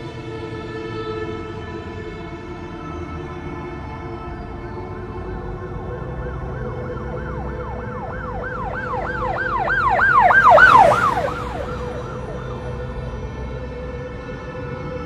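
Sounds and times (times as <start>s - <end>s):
background music: 0.0s - 15.0s
siren yelping: 6.3s - 13.1s.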